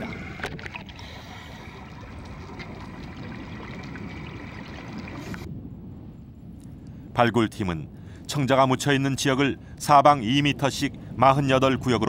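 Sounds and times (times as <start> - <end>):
underwater rumbling water noise: 0.0 - 5.8.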